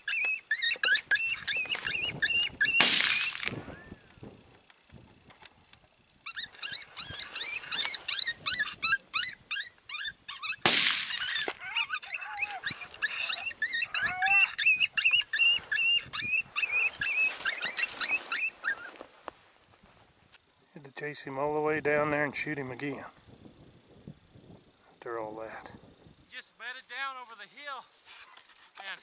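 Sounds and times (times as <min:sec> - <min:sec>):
coyote yelping and yipping: 0:00.0 - 0:04.0, 0:06.2 - 0:19.0.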